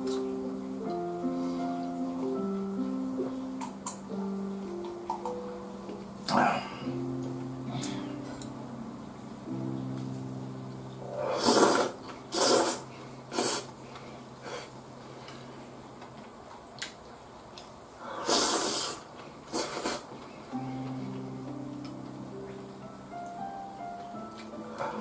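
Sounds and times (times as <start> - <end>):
quiet background music: 0.0 - 18.0, 19.2 - 25.0
person slurping noodles: 11.2 - 13.7, 18.2 - 20.0.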